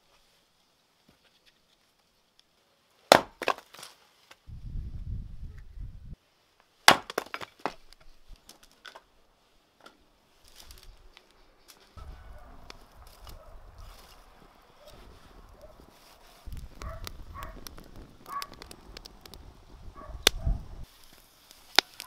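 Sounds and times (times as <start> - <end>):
axe splitting firewood: 3.1 - 4.0, 6.8 - 9.1
split wood pieces clattering: 3.1 - 4.4, 6.9 - 9.1.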